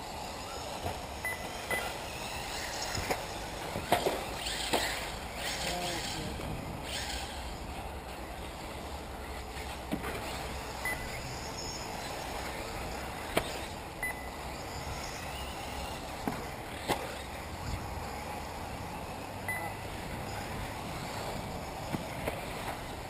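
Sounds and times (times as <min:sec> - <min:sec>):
rc car motor and tyre noise: 0:00.0 - 0:23.0
wind: 0:00.0 - 0:23.0
short high beeps: 0:10.8 - 0:11.1.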